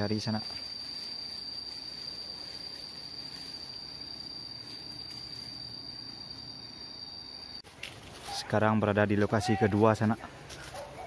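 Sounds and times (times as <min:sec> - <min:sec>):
insect buzzing: 0:00.0 - 0:07.6.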